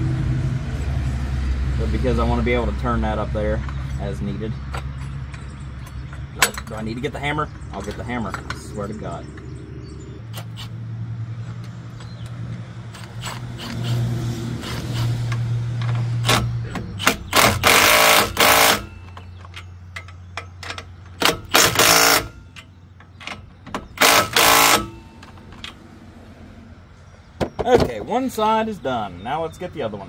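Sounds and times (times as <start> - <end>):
power driver rattling bursts: 10.2 - 10.8, 12.8 - 19.6, 20.2 - 22.6, 23.2 - 25.1
power driver motor whirring: 12.9 - 15.4, 16.2 - 18.9, 21.3 - 22.4, 24.0 - 25.0.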